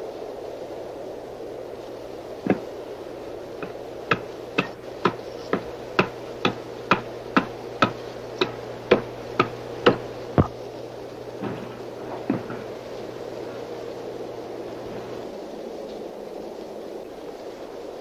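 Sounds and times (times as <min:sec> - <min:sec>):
hatchet chopping wood: 0:02.5 - 0:02.7, 0:03.6 - 0:10.5.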